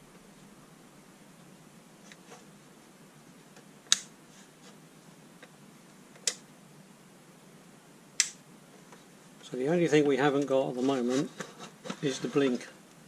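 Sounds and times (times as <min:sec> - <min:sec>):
torch switch clicks: 0:03.9 - 0:04.1, 0:08.2 - 0:08.4.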